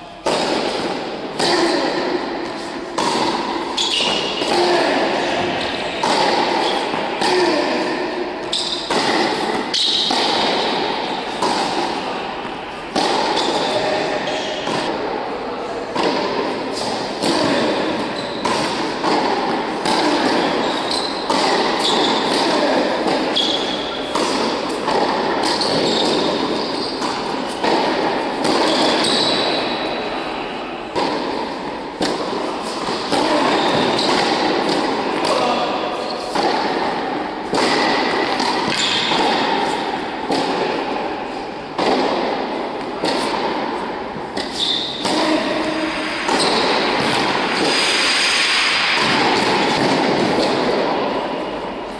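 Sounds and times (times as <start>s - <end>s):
tennis balls struck by racquets: 0.0s - 51.9s
tennis balls bouncing on hard court: 0.2s - 15.2s, 15.9s - 51.7s.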